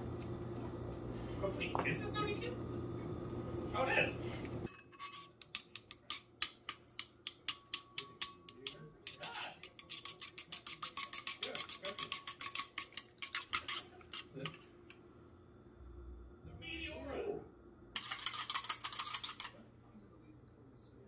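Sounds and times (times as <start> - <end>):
chopsticks beating eggs in a bowl: 5.3 - 14.9, 18.0 - 19.6.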